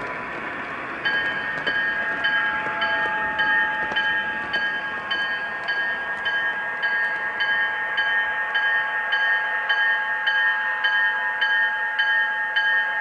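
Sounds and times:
model locomotive bell ringing: 0:00.0 - 0:13.0
model train running on track: 0:00.0 - 0:13.0.

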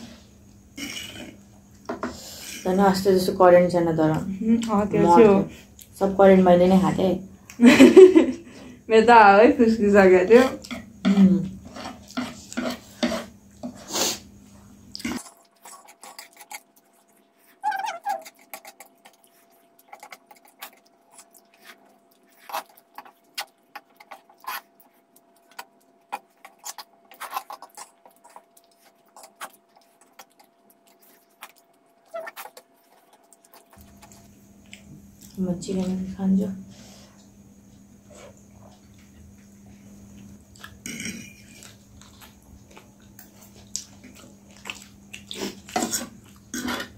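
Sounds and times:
chopsticks and fork clinking on plates: 0:40.8 - 0:41.7.

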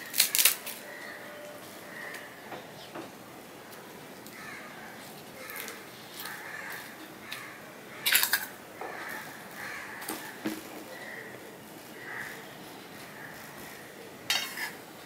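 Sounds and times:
bird calling: 0:04.4 - 0:14.4.

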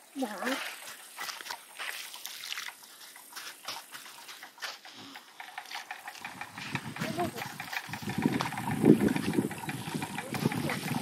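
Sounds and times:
water sloshing in plastic bucket: 0:00.2 - 0:03.8.

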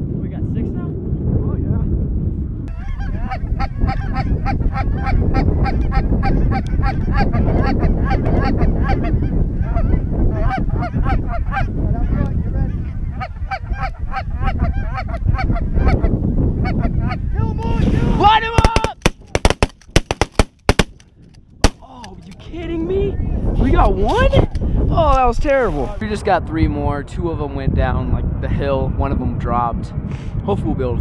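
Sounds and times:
wind rumble on microphone: 0:00.0 - 0:31.0
goose honking and clucking: 0:02.7 - 0:16.0.

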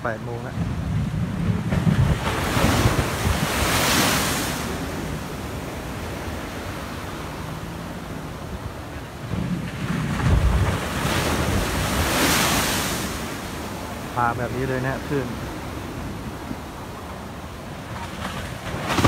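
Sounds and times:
surf crashing against seawall: 0:00.0 - 0:19.0
wave slamming with deep thuds: 0:00.4 - 0:06.2, 0:09.2 - 0:14.0.

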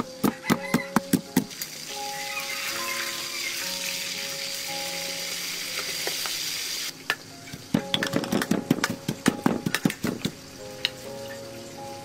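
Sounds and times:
pestle pounding in wooden mortar: 0:00.0 - 0:01.6, 0:07.5 - 0:10.4
fish sizzling in hot oil: 0:00.7 - 0:12.0.

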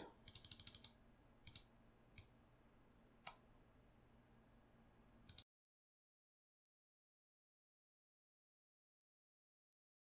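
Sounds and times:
keyboard and mouse clicks: 0:00.2 - 0:02.4, 0:03.2 - 0:03.4, 0:05.2 - 0:05.5.

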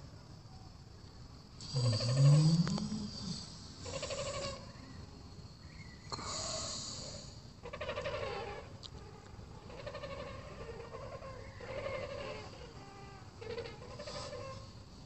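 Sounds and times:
cranes calling: 0:03.8 - 0:05.0, 0:07.6 - 0:14.8.

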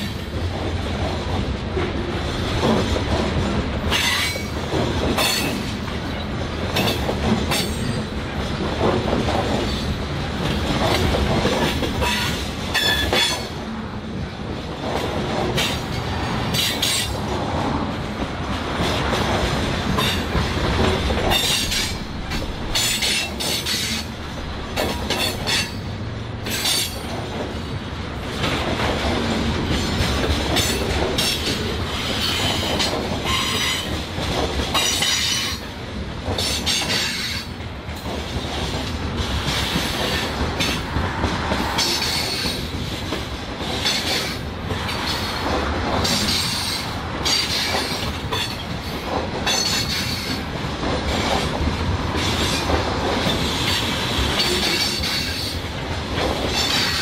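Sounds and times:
steel wheels rumbling on rail: 0:00.0 - 0:57.0.

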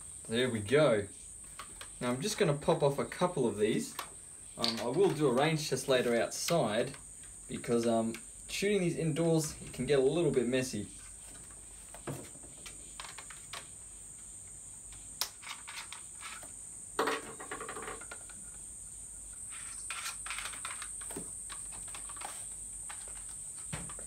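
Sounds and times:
plastic toy clicks and rattles: 0:15.2 - 0:16.4, 0:19.7 - 0:23.3.

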